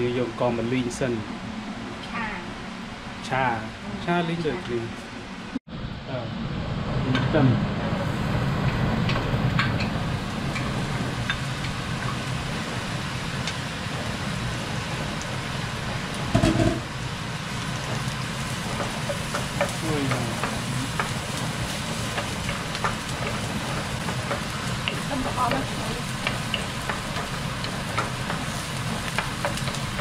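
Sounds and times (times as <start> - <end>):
food sizzling in oil: 7.9 - 30.0
loud clunk: 16.3 - 16.9.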